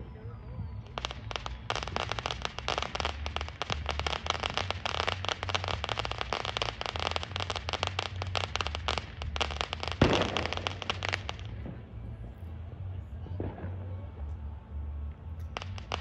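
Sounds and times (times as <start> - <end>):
fireworks crackling: 0.0 - 16.0
firework bang: 0.8 - 11.9.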